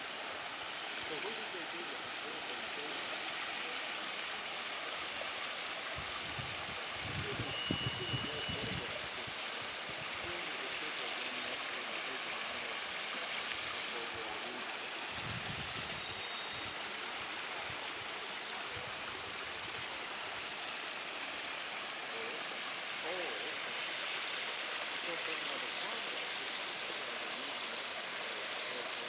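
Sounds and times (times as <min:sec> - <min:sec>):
water spilling over rocks: 0:00.0 - 0:29.0.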